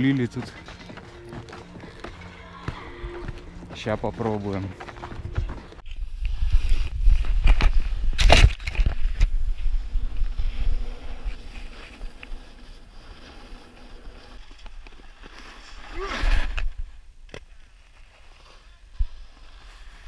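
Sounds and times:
skis scraping on snow: 0:09.0 - 0:16.9, 0:17.5 - 0:20.0.

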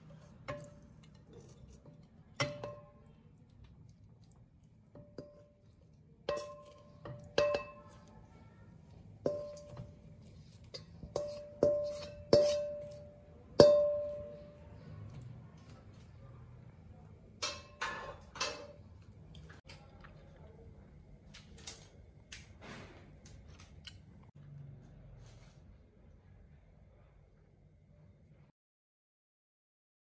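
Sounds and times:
metal utensil knocking wok: 0:06.3 - 0:08.0, 0:09.3 - 0:10.0, 0:10.7 - 0:14.6, 0:17.4 - 0:18.8.

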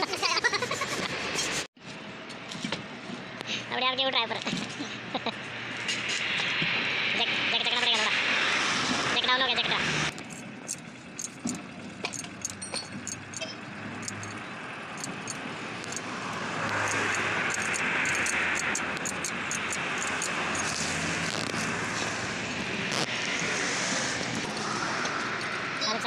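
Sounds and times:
traffic noise: 0:00.0 - 0:26.0
jack handle clicking and clinking: 0:10.2 - 0:14.4, 0:15.0 - 0:16.0, 0:16.7 - 0:20.8.

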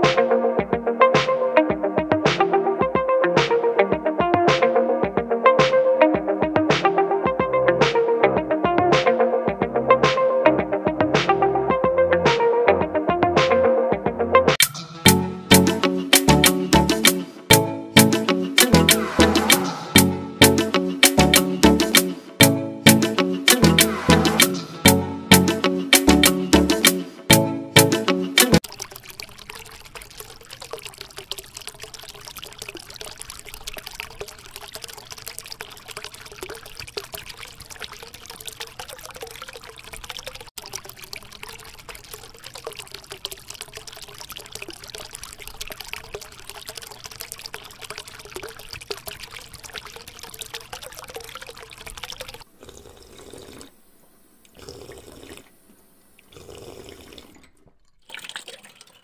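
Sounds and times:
water pouring into plastic tub: 0:28.5 - 0:53.7, 0:56.2 - 0:59.0.

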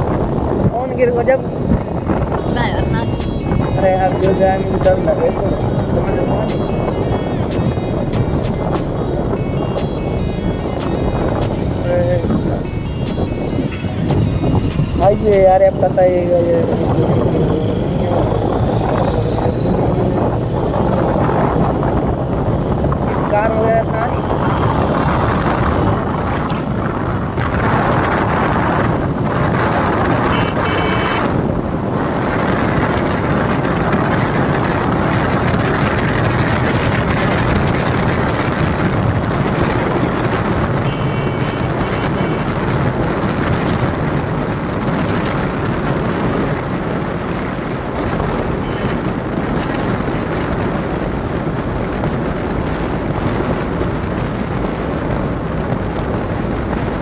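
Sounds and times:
motorcycle engine: 0:00.0 - 0:31.4, 0:33.1 - 0:52.8
wind and road noise: 0:00.0 - 0:57.0.

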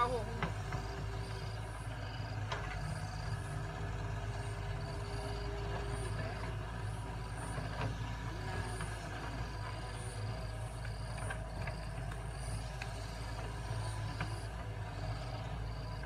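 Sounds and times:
excavator diesel engine running: 0:00.0 - 0:16.0.

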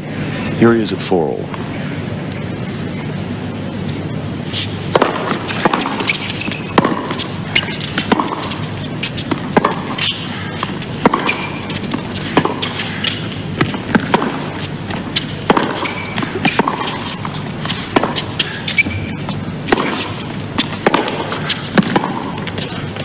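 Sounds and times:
racket striking tennis ball: 0:04.6 - 0:22.8
ball bouncing on hard court: 0:04.9 - 0:22.8
shoe squeaks on court: 0:05.5 - 0:09.3, 0:11.2 - 0:11.9, 0:15.2 - 0:17.9, 0:18.7 - 0:19.4.

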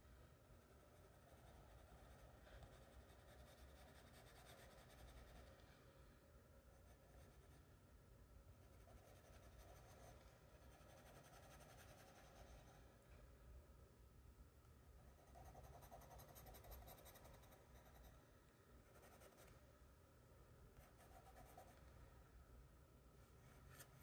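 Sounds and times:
pencil scratching on paper: 0:00.8 - 0:05.5, 0:08.6 - 0:12.8, 0:15.1 - 0:18.1, 0:18.9 - 0:19.5.

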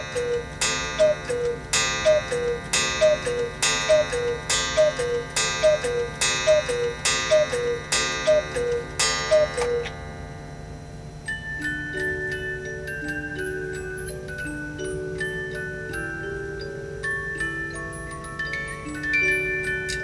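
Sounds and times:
two-note cuckoo call: 0:00.0 - 0:10.0.

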